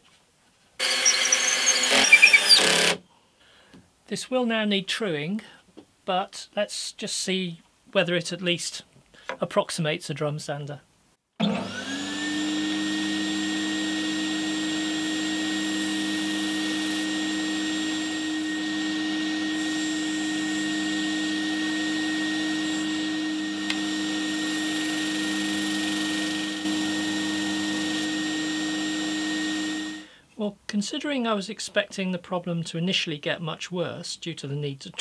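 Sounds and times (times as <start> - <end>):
drum sander humming and whining: 11.5 - 30.1.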